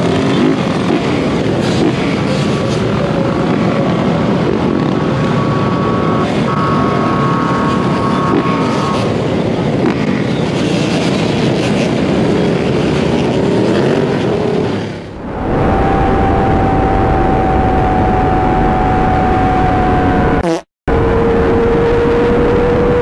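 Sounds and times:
dirt bike engines revving: 0.0 - 23.0
wind on microphone: 7.7 - 23.0
steady high tone: 15.1 - 21.3.

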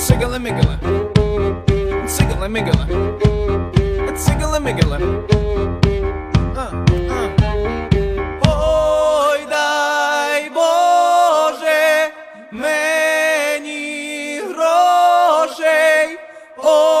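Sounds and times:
unaccompanied voices singing: 7.1 - 17.0.

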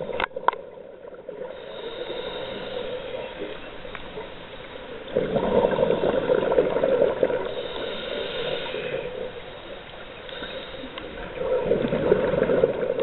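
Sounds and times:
regulator inhale hiss: 1.4 - 6.5, 7.2 - 11.7
exhaled bubbles underwater: 5.0 - 9.4, 10.4 - 13.0.

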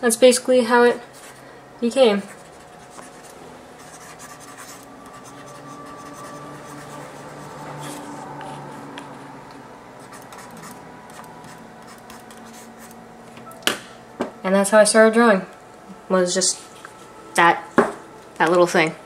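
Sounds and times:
stylus scratching on a tablet: 2.1 - 8.7, 10.0 - 13.0.

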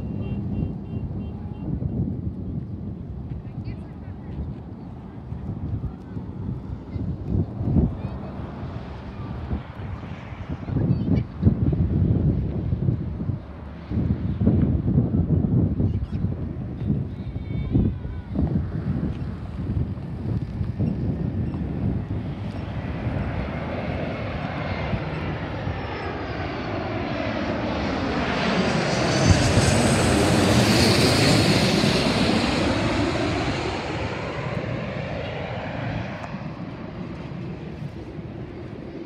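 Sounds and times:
jet airliner passing overhead: 0.0 - 39.0
turbofans whining and rushing: 12.3 - 39.0.

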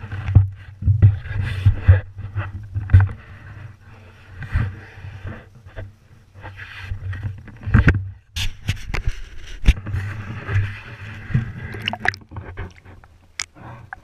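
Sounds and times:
water splashing and sloshing: 9.8 - 14.0
low underwater rumble: 10.0 - 14.0.

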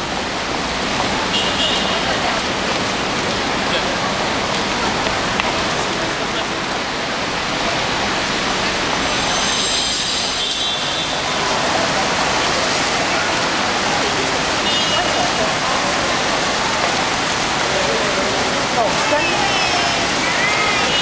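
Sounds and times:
fountain splashing: 0.0 - 21.0
traffic noise: 0.0 - 21.0
voices of passers-by: 0.0 - 21.0
high thin whine: 8.9 - 10.9.

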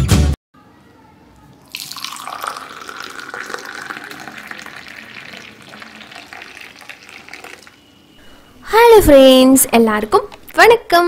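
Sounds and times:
tea pouring into glass cup: 1.6 - 8.0.

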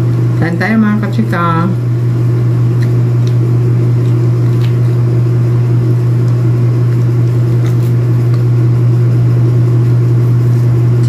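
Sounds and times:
loud low hum: 0.0 - 11.0
fruit segments pulled apart: 2.7 - 8.7.

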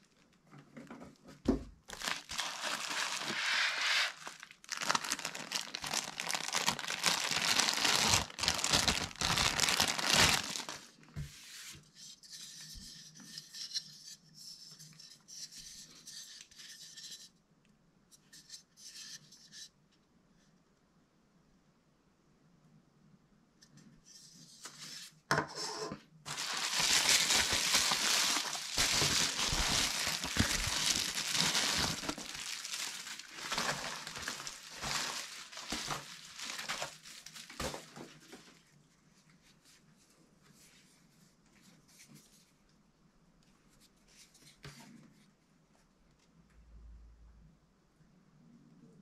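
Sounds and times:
bubble wrap crinkling: 1.9 - 11.1, 26.3 - 38.4.

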